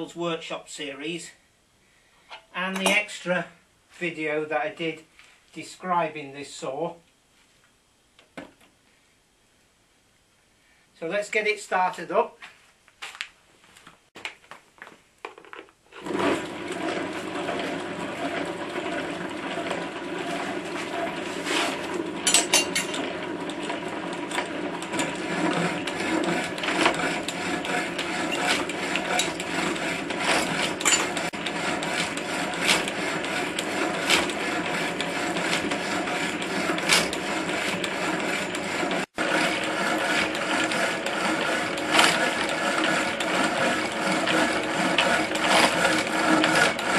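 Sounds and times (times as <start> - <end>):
power hacksaw cutting steel: 16.0 - 46.9.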